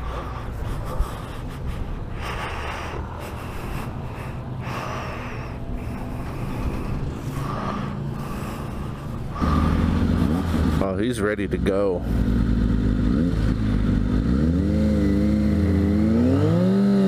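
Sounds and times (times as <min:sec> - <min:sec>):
breaths close to microphone: 0:00.0 - 0:10.8
low rumble of traffic: 0:00.0 - 0:17.0.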